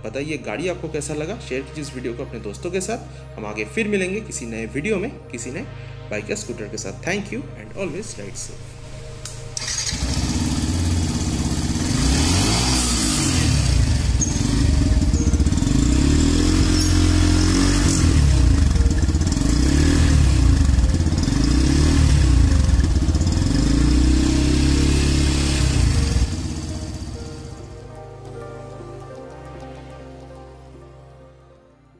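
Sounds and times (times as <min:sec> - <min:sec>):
motorcycle engine revving: 0:09.3 - 0:27.6.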